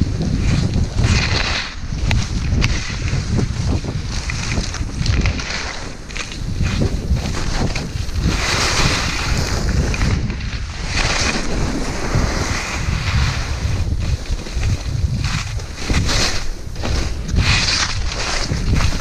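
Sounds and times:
wind on microphone: 0.0s - 19.0s
skis hissing over snow: 3.8s - 10.1s, 10.7s - 19.0s.

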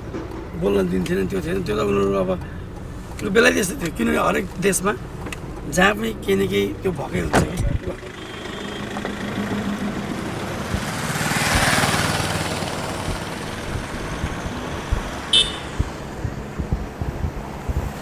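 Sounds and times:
traffic rumble: 0.0s - 18.0s
vehicle passing: 7.9s - 18.0s
brief high beep: 15.3s - 15.8s.

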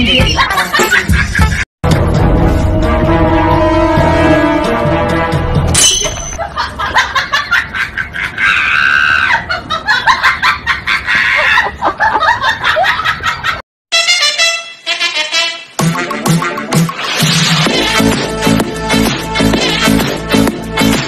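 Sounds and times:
background music: 0.0s - 6.3s, 13.9s - 21.0s
person screaming and laughing: 7.9s - 9.8s, 10.8s - 11.9s.

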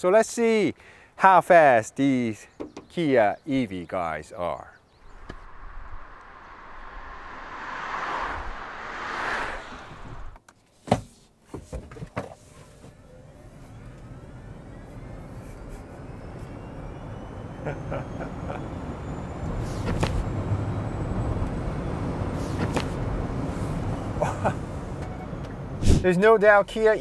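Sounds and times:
rush of noise: 5.0s - 10.4s
tyre and road noise: 5.0s - 27.0s
electric motor whine rising: 5.2s - 10.4s, 13.0s - 22.3s.

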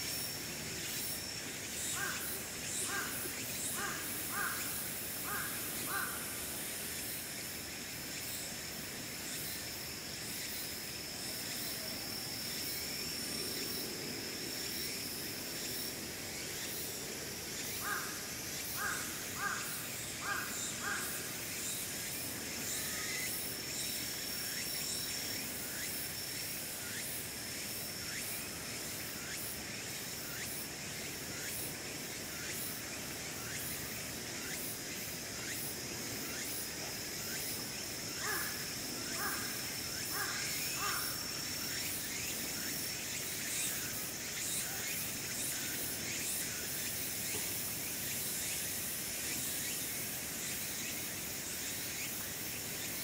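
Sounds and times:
high-pitched insect drone: 0.0s - 53.0s
crow cawing: 2.9s - 3.2s, 3.8s - 6.2s, 17.8s - 18.2s, 18.8s - 21.2s, 38.2s - 38.6s, 39.2s - 41.2s.

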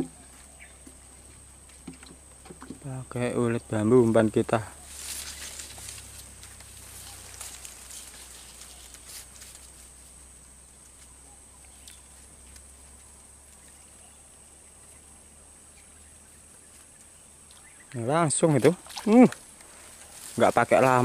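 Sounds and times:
rustling in grass: 4.7s - 14.2s, 16.2s - 21.0s.

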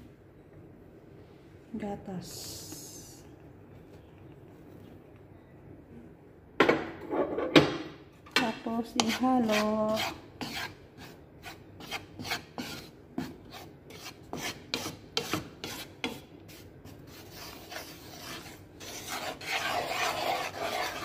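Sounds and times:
wooden spatula scraping a pan: 8.9s - 21.0s.

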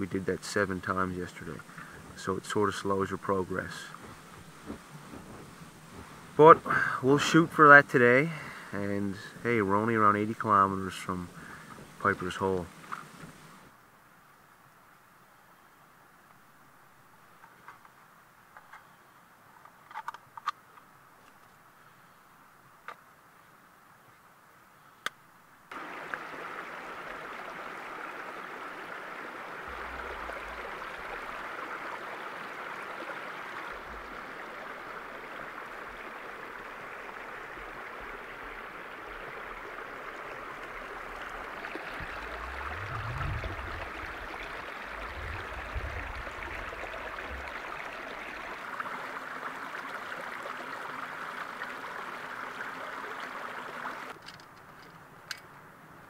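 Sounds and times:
brook running over rocks: 0.0s - 13.7s, 25.7s - 54.2s
low rumble: 41.8s - 47.7s.

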